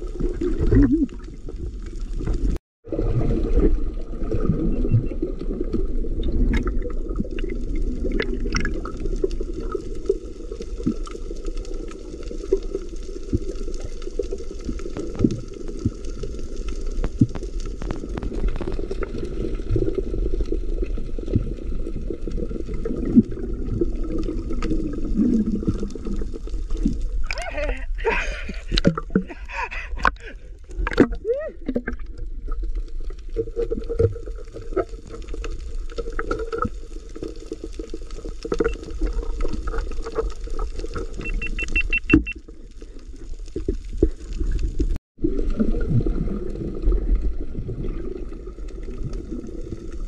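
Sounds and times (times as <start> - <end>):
muffled underwater water rumble: 0.0 - 50.0.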